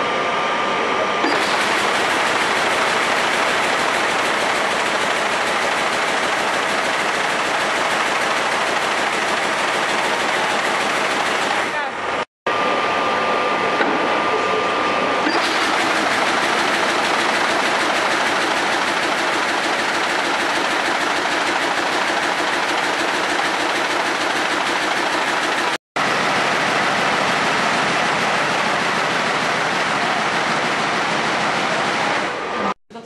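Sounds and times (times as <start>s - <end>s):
weaving loom clattering: 15.3s - 25.8s.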